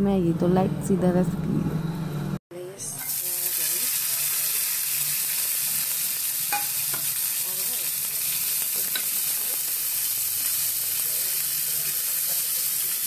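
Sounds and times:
vegetables sizzling in oil: 3.0s - 13.0s.

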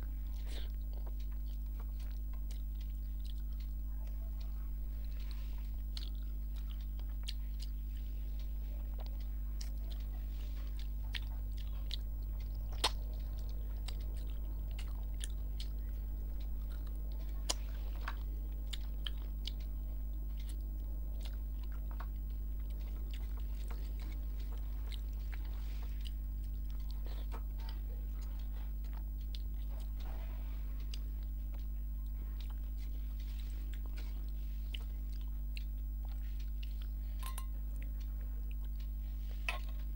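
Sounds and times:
low hum: 0.0s - 39.9s
chewing and wet mouth clicks: 0.3s - 39.9s.

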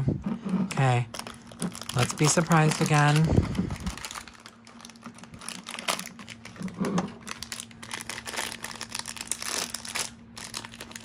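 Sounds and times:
plastic wrapper crinkling: 1.1s - 11.0s.

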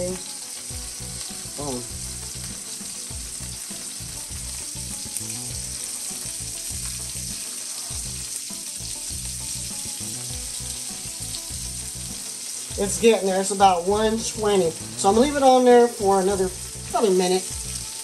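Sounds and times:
patty sizzling in a frying pan: 0.0s - 18.0s.

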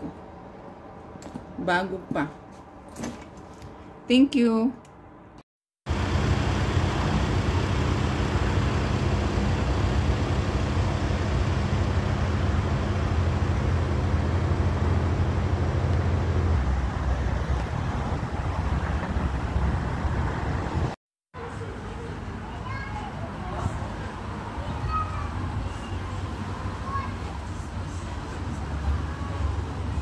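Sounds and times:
road traffic noise: 4.9s - 30.0s
vehicle engine running close by: 5.9s - 20.9s.

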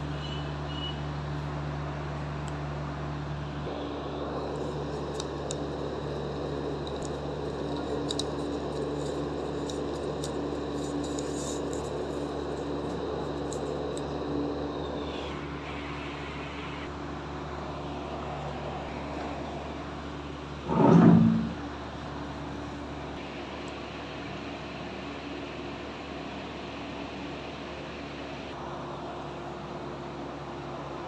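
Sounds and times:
steady background hum: 0.0s - 31.0s
newspaper rustling and crackling: 6.9s - 13.9s.

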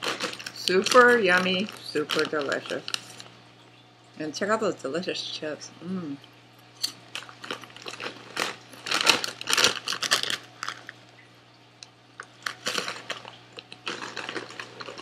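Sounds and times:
chips being chewed: 0.0s - 3.3s, 6.8s - 11.2s, 12.2s - 15.0s
foil chip bag crinkling: 0.0s - 3.4s, 6.9s - 11.3s, 12.2s - 15.0s.

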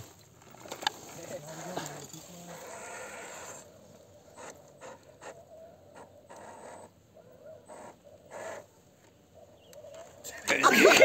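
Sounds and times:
tyres scrabbling on loose dirt: 0.0s - 3.7s.

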